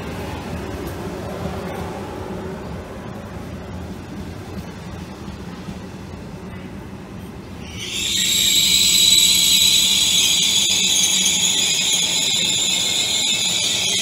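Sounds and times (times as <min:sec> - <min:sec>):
train wheel squeal: 0:07.5 - 0:14.0.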